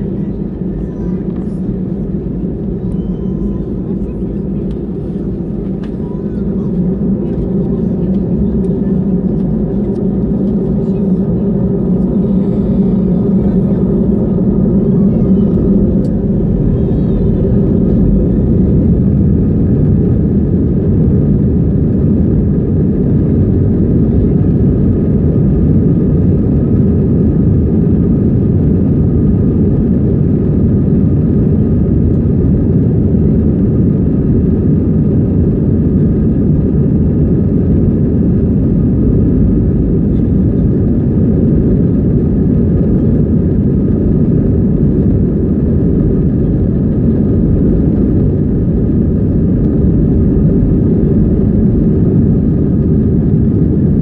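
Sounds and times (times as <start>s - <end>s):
faint whining tones: 0.0s - 20.5s
jet engine cabin rumble: 0.0s - 54.0s.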